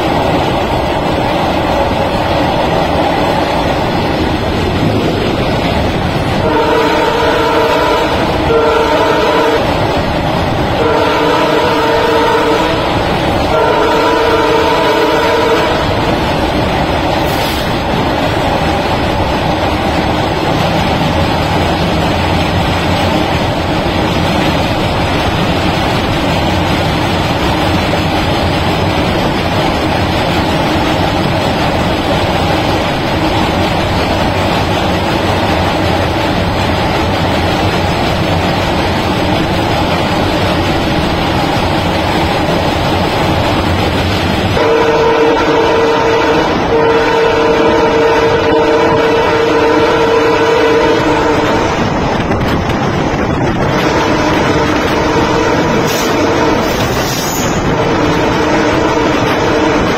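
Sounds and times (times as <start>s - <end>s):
train wheels rumbling on rail: 0.0s - 59.9s
train horn: 6.3s - 10.0s, 10.7s - 16.1s, 44.5s - 51.9s, 53.6s - 59.9s.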